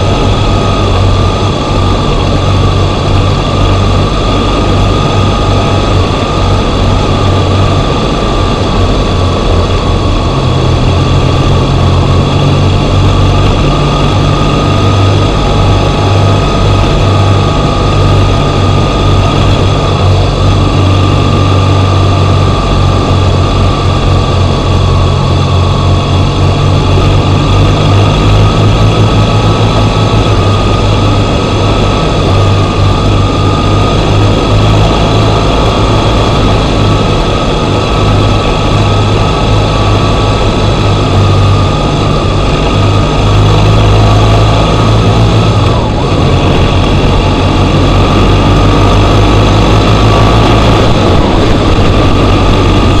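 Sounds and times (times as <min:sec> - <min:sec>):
motorcycle engine running: 0:00.0 - 0:53.0
road noise: 0:00.0 - 0:53.0
wind noise: 0:00.0 - 0:53.0.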